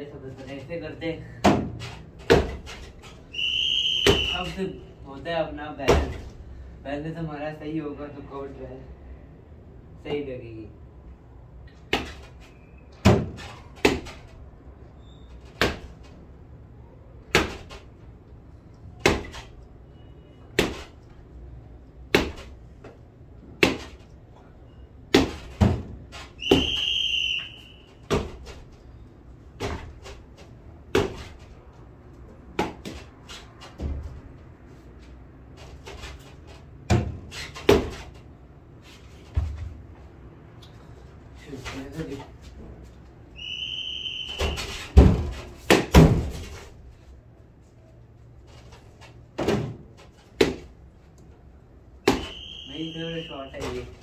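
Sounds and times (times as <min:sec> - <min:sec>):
brief high whistle: 0:03.4 - 0:04.5, 0:26.4 - 0:27.9, 0:43.4 - 0:44.8, 0:52.2 - 0:53.6
cricket bat striking tennis ball: 0:19.0 - 0:19.5, 0:20.6 - 0:20.9, 0:22.1 - 0:22.6, 0:23.5 - 0:24.0, 0:25.1 - 0:26.9, 0:30.9 - 0:31.4, 0:50.4 - 0:50.8, 0:52.0 - 0:52.4.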